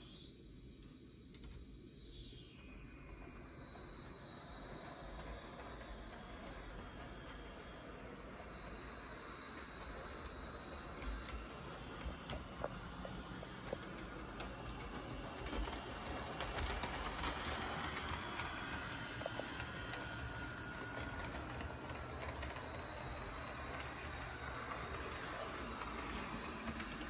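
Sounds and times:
model locomotive motor whirring: 0.0 - 27.0
wheels clicking on rails: 4.4 - 27.0.

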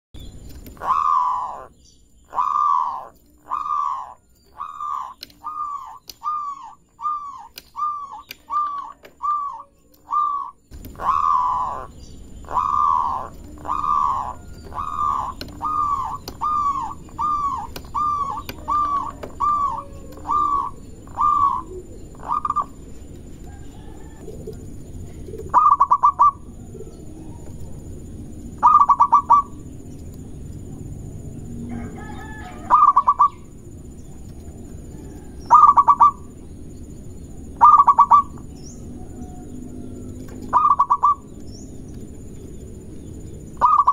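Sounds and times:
dove cooing: 0.7 - 29.8, 30.8 - 36.4, 37.4 - 41.4, 43.2 - 43.9
bird rattling trills: 2.3 - 26.6, 28.5 - 29.9, 37.4 - 43.9.

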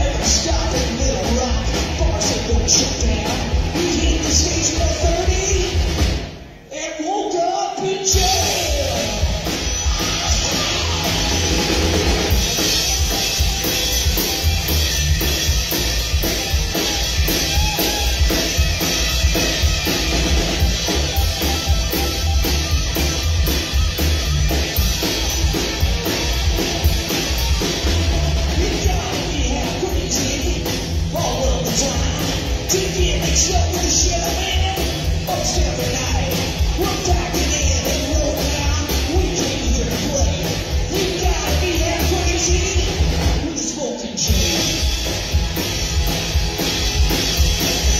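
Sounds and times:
upright bass: 0.0 - 6.2, 8.0 - 43.6, 44.2 - 47.9
drum kit beat: 0.0 - 6.7, 7.8 - 47.9
electric guitar: 8.1 - 47.9.

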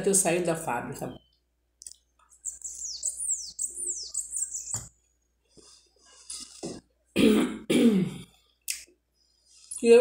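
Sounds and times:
high falling chirps: 1.2 - 5.2.

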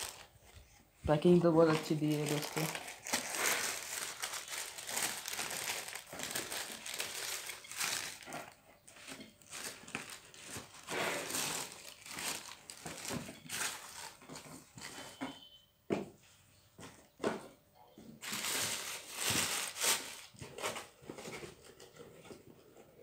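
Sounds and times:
tissue paper crinkling: 0.0 - 15.0, 18.2 - 21.3.

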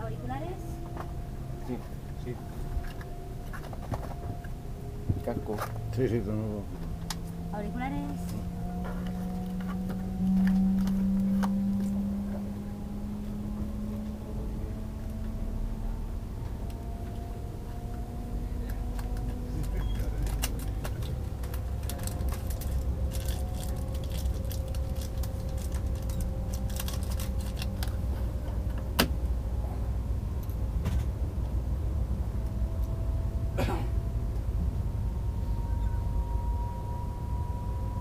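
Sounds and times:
faint electric whines: 0.0 - 38.0
train running gear rumble: 13.2 - 36.1.

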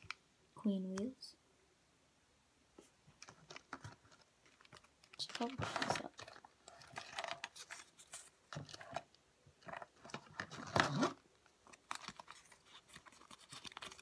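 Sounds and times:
rummaging in plastic container: 3.2 - 14.0.

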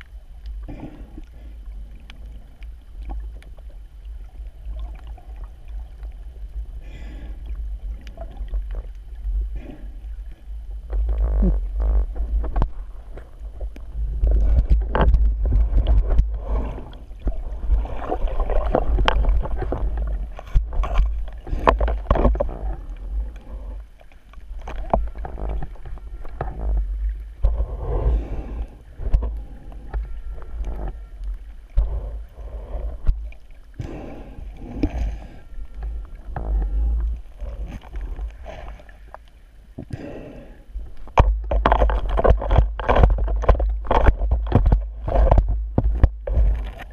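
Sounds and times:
low underwater rumble: 0.0 - 46.9
water swirling underwater: 0.0 - 46.9.

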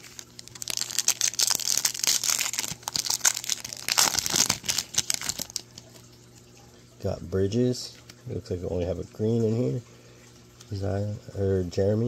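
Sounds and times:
plastic wrapper tearing and crinkling: 0.0 - 5.9.

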